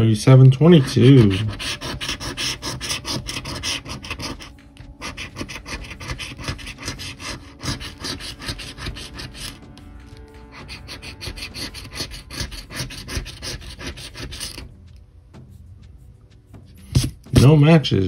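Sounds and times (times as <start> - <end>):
coin scraping scratch-off ticket: 0.6 - 14.7.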